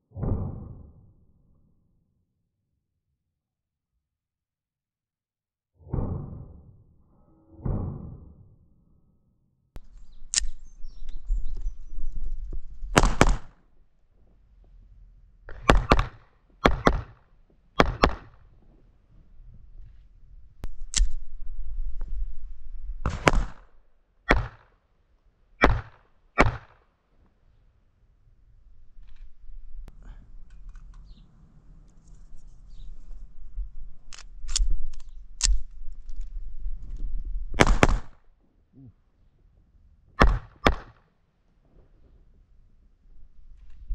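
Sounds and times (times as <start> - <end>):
pistol metallic clicks: 9.8 - 11.2, 20.6 - 21.2, 34.1 - 36.3
wind rumbling on microphone: 9.8 - 15.8, 18.2 - 23.7, 28.2 - 38.1, 41.5 - 43.9
gunshots: 12.9 - 13.6, 15.5 - 18.5, 23.0 - 24.7, 25.6 - 26.9, 37.6 - 38.2, 40.2 - 41.1
pistol shots: 12.9 - 13.6, 15.5 - 18.5, 23.0 - 23.7, 24.3 - 24.7, 25.6 - 26.9, 37.6 - 38.2, 40.2 - 41.1.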